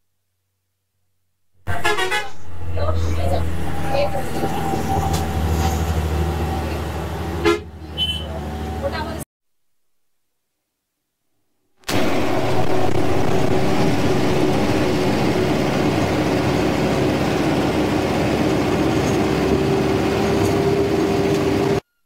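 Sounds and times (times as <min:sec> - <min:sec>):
road noise: 0:01.6 - 0:09.2, 0:11.9 - 0:21.8
vehicle engine drone: 0:01.6 - 0:09.2, 0:11.9 - 0:21.8.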